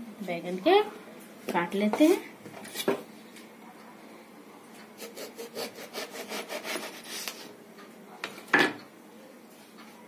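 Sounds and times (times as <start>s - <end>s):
knife sawing through eggplant: 5.0s - 7.5s.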